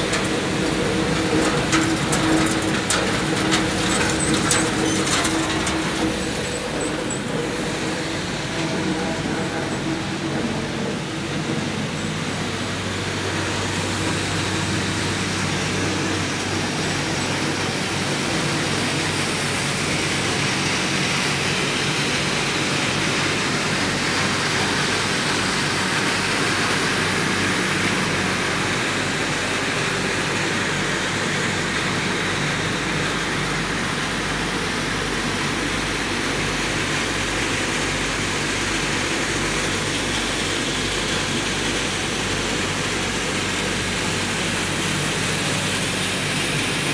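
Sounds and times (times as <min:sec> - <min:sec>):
blowers rushing air through ducts: 0:00.0 - 0:46.9.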